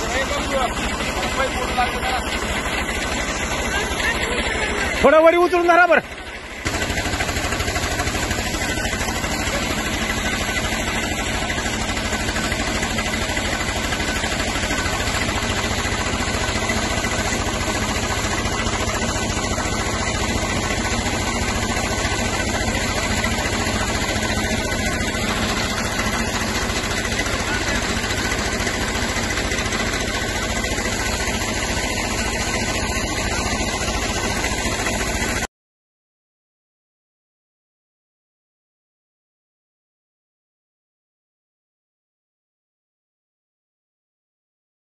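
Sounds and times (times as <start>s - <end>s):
tractor engine running under load: 0.0s - 35.5s
water jet rushing from hose: 0.0s - 35.5s.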